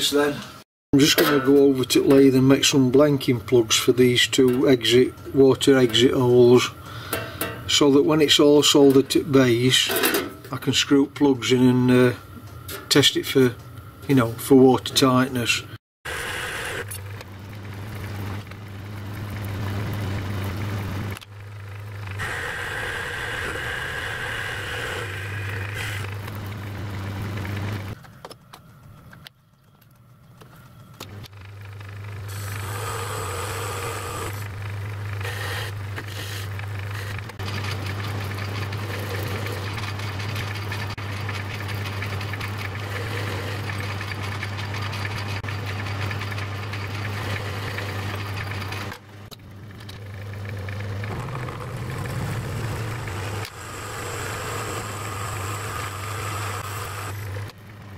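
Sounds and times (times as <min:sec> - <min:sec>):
metal lathe motor hum: 0:16.1 - 0:28.0, 0:31.2 - 0:57.9.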